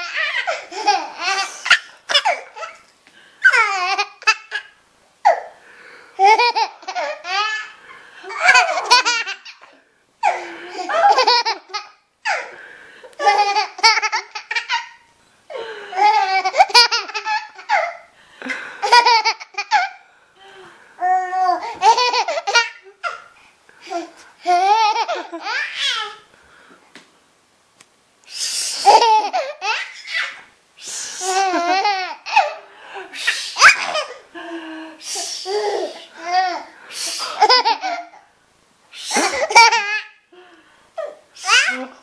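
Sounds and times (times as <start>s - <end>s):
baby laughing: 0.0s - 5.5s, 6.2s - 12.6s, 13.2s - 15.1s, 15.9s - 18.1s, 18.8s - 20.0s, 21.0s - 26.2s, 28.8s - 30.5s, 31.2s - 32.7s, 33.5s - 34.3s, 35.5s - 38.3s, 39.2s - 40.2s.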